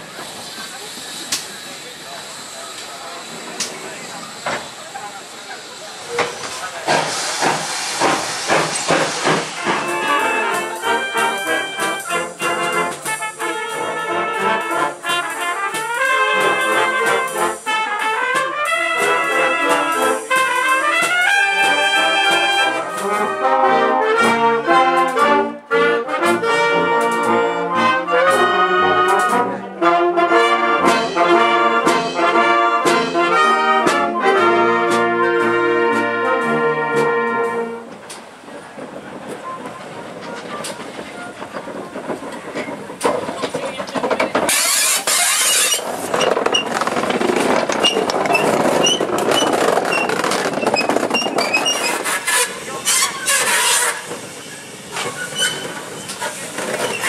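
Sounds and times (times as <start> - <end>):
steam hissing: 0.0 - 23.4, 36.5 - 57.0
brass band playing: 8.1 - 38.0.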